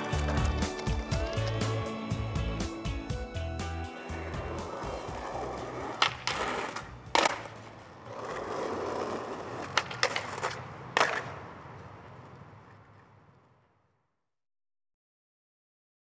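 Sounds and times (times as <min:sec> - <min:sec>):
skateboard clacks: 0:00.0 - 0:01.7, 0:04.1 - 0:13.6
skateboard wheels rolling on asphalt: 0:00.0 - 0:14.2.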